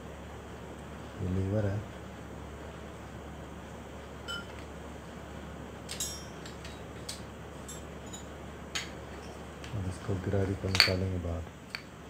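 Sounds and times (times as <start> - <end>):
steady low hum: 0.0 - 12.0
metal parts clinking: 5.9 - 8.9.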